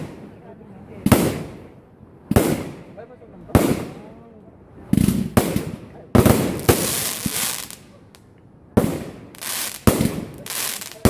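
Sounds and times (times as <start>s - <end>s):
fireworks bangs: 0.0s - 0.4s, 1.0s - 4.2s, 4.9s - 11.0s
hiss of sparks: 9.4s - 11.0s.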